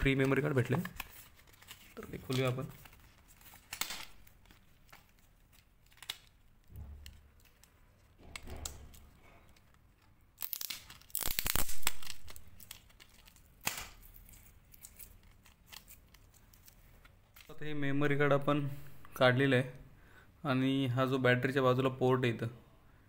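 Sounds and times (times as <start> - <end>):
packet being torn and crinkled: 0.2 - 17.6.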